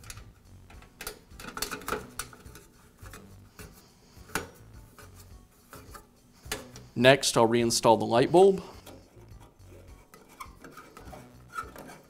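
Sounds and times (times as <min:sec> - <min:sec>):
small metallic clicks and taps: 0:00.0 - 0:04.6.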